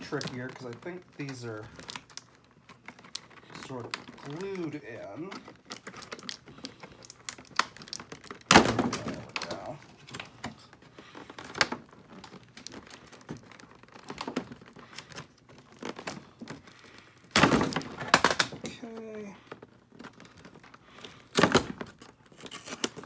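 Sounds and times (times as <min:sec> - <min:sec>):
cardboard crinkling: 0:00.0 - 0:23.0.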